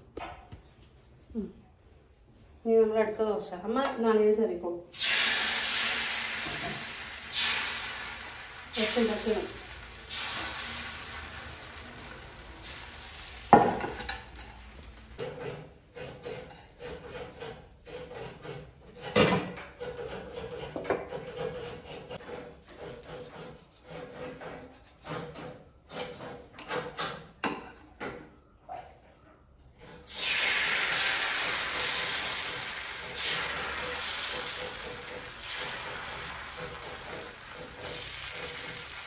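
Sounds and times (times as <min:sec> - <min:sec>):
hiss: 0:05.0 - 0:13.6, 0:30.1 - 0:39.0
coconut grating rasps: 0:19.8 - 0:26.2.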